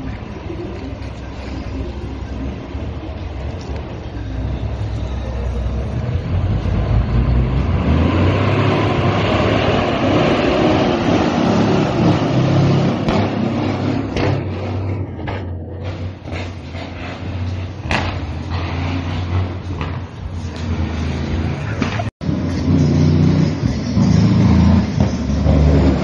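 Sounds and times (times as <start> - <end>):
truck diesel engine driving past: 0.0 - 19.8.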